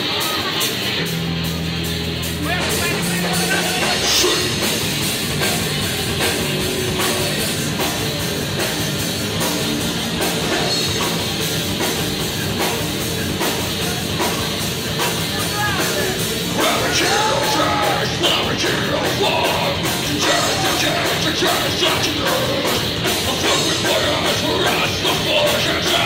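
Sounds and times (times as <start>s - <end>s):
driving drum kit: 0.0s - 26.0s
electric guitars: 0.0s - 26.0s
metal band playing live: 0.0s - 26.0s.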